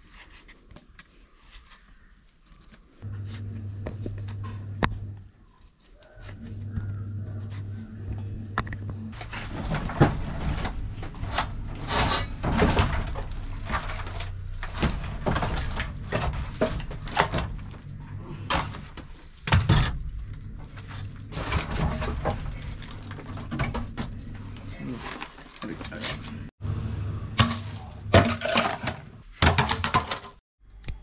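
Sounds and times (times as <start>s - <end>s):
low steady hum: 3.0s - 29.2s
firewood logs knocking together: 27.4s - 30.4s.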